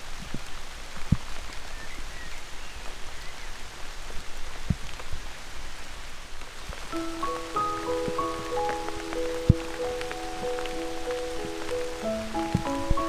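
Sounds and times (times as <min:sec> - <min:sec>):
light rain on grass and leaves: 0:00.0 - 0:13.0
water drips: 0:06.8 - 0:13.0.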